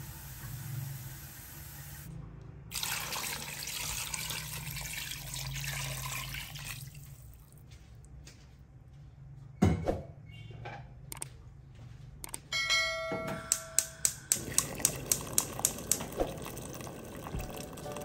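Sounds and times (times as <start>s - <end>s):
water pouring into a pot: 2.7s - 7.4s, 14.4s - 18.0s.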